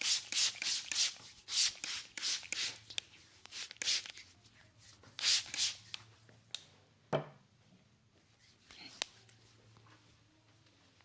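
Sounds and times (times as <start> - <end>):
spray bottle hissing sprays: 0.0 - 4.2, 5.2 - 6.0.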